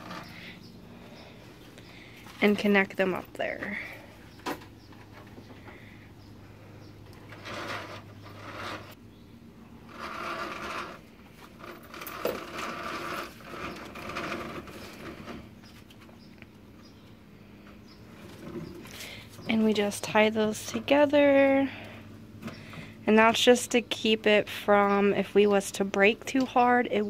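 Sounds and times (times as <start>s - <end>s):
rope rustling and scraping: 0.0s - 0.6s, 7.0s - 9.0s, 9.8s - 16.2s.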